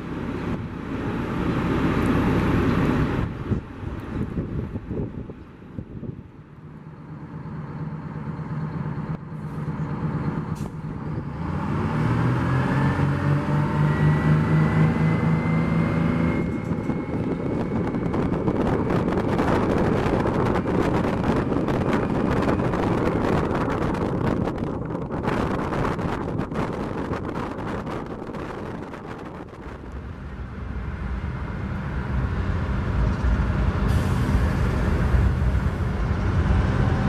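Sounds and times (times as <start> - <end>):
bus engine running: 0.0 - 37.0
road noise of bus approaching: 0.0 - 37.0
thin rising whine: 11.1 - 23.7.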